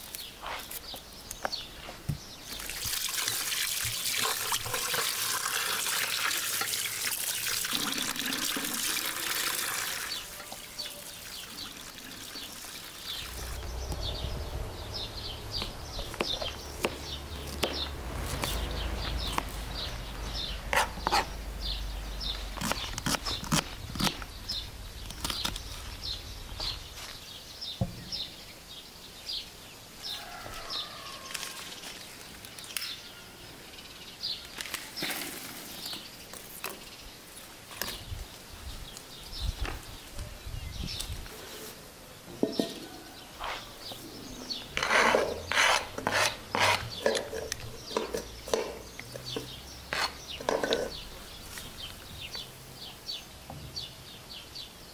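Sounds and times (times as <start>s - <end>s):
water running and splashing: 2.5s - 13.6s
birds chirping: 6.6s - 54.9s.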